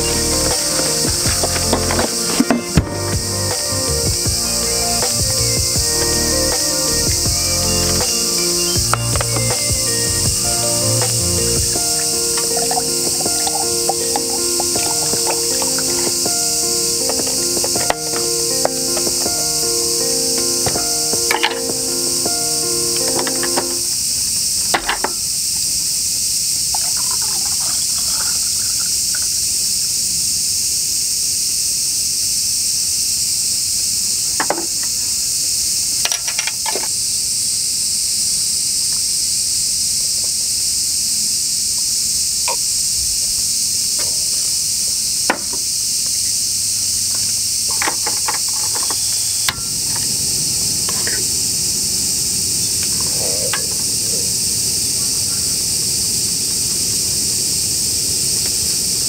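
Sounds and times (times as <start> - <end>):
high-pitched insect chorus: 0.0 - 59.0
tableware clicks and knocks: 11.9 - 19.4, 20.6 - 21.8, 36.0 - 36.9.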